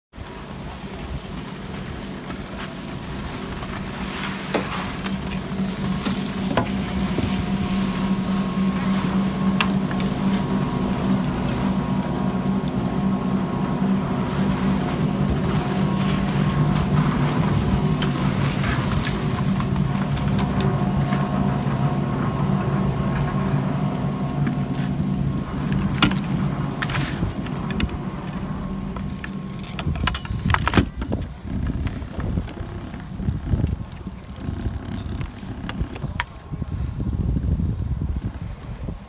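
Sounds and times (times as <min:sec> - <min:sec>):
chairlift machinery humming: 0:00.2 - 0:39.0
sharp clicks and clunks: 0:25.4 - 0:37.0.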